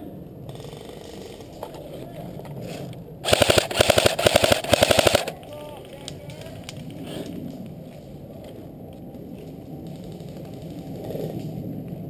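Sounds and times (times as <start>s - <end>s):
airsoft rifle firing on full auto: 3.2s - 5.4s.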